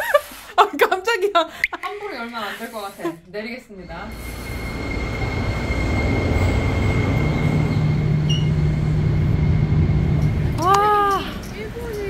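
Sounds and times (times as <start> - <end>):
thin high whine: 2.7 - 11.6
train wheels rumbling: 3.4 - 12.0
steady low hum: 3.5 - 12.0.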